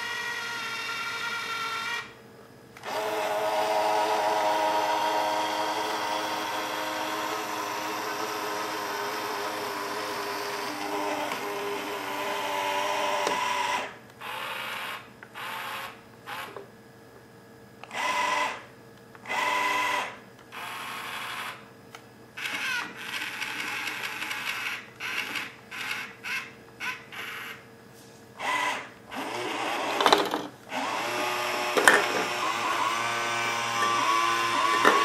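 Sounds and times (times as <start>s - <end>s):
robot gear motors whirring: 28.4s - 35.0s.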